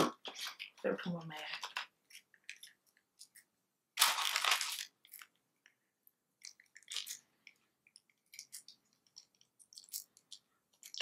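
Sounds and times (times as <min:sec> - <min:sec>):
plastic sachet crackling: 0:01.5 - 0:05.4, 0:06.4 - 0:07.2
plastic sachet ripping: 0:04.0 - 0:05.4, 0:06.4 - 0:07.2.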